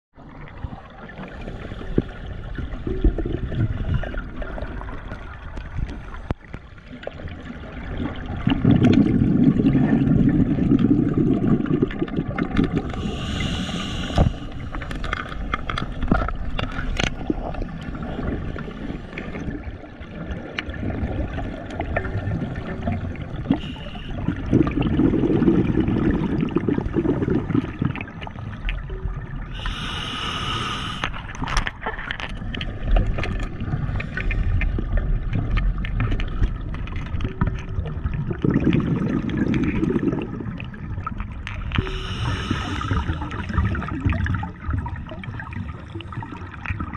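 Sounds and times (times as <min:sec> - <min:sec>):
underwater water noise: 0:00.1 - 0:46.9
underwater exhale bubbling: 0:00.2 - 0:15.5, 0:16.1 - 0:31.6, 0:37.8 - 0:46.9
regulator inhale hiss: 0:12.9 - 0:14.8, 0:23.5 - 0:24.2, 0:29.5 - 0:31.2, 0:41.8 - 0:43.6.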